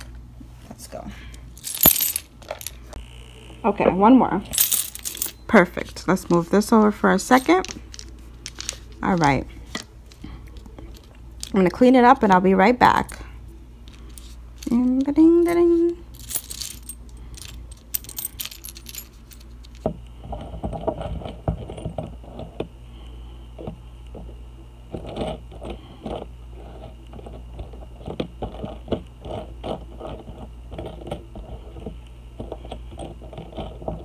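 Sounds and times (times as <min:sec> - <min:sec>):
metal charms clinking: 0:01.6 - 0:02.8, 0:04.5 - 0:05.4, 0:14.0 - 0:19.8.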